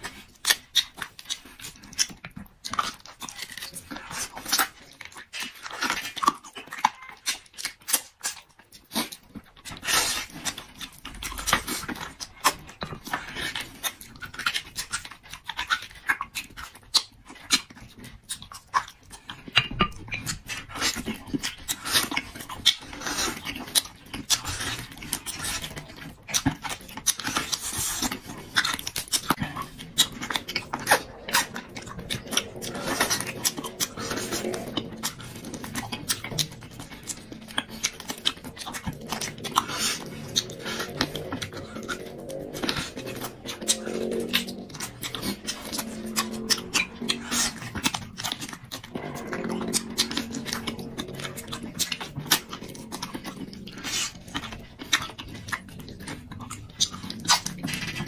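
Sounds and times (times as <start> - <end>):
person chewing and crunching: 0.0 - 58.0.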